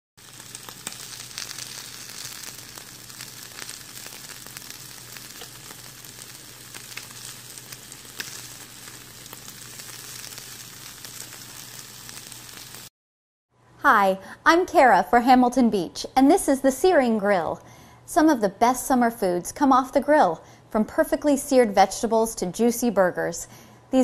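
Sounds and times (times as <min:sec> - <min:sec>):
meat sizzling on a grill: 0:00.2 - 0:12.9.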